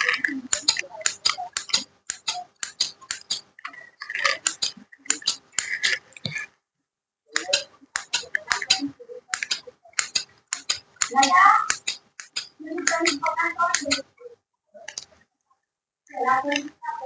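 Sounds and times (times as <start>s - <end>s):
scissors snipping hair: 0.0s - 6.0s, 7.4s - 14.0s.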